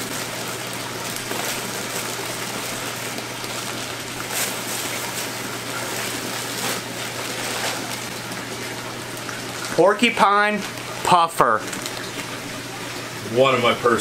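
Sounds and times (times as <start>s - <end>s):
plastic bags crinkling: 0.0s - 11.0s, 11.6s - 12.7s
low pump hum: 0.0s - 14.0s
running water from aquarium filter: 0.0s - 14.0s.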